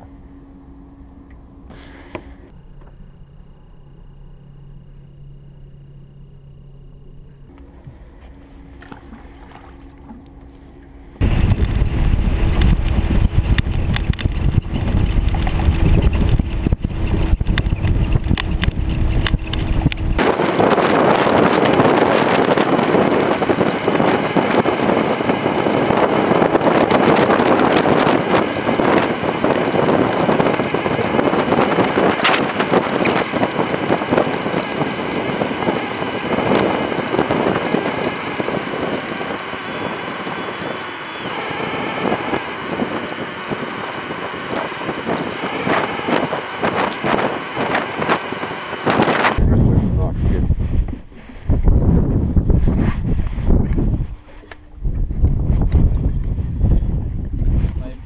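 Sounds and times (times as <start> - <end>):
outboard motor boat running: 0.0 - 58.0
wind rushing over microphone: 11.2 - 58.0.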